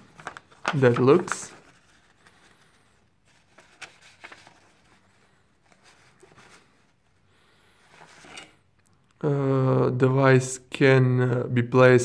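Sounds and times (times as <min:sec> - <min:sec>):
paper rustling: 0:00.0 - 0:08.6.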